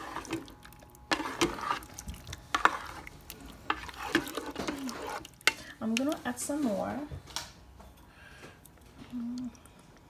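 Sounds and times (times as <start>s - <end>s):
spoon stirring sauce in pot: 0.0s - 6.3s
spoon knocking and scraping pot: 1.1s - 5.6s.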